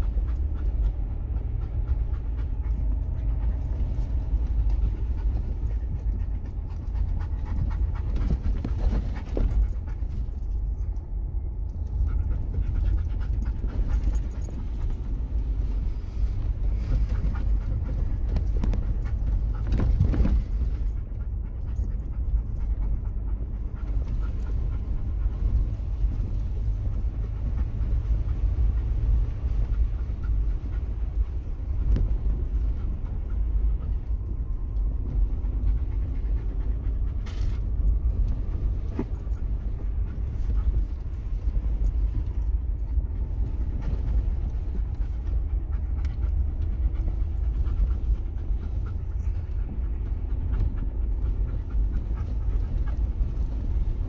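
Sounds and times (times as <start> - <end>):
engine and tyre rumble: 0.0 - 54.0
vehicle knocks and jolts: 16.7 - 21.0.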